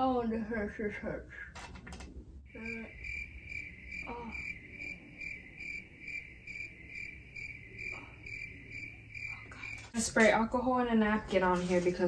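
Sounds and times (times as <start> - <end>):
crickets chirping: 2.5 - 10.0.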